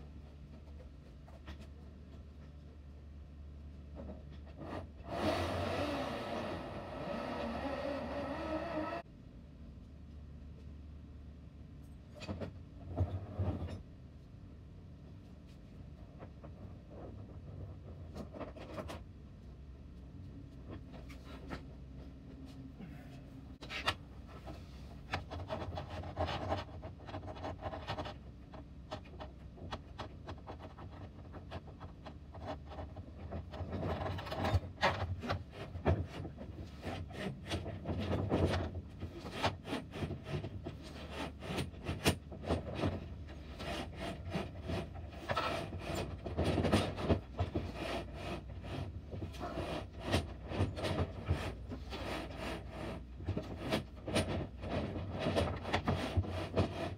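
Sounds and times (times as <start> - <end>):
wire rope scraping through metal: 4.0 - 9.0, 42.8 - 56.9.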